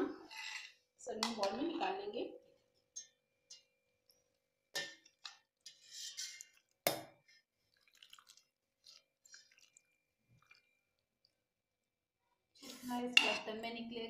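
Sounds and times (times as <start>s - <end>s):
metal spoon scraping pot: 0.0s - 2.0s, 4.8s - 6.8s, 12.7s - 13.8s
curry slopping into bowl: 4.1s - 11.9s.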